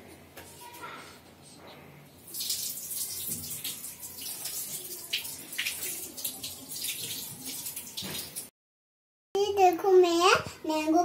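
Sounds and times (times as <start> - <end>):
tap water splashing into sink: 2.3 - 8.5.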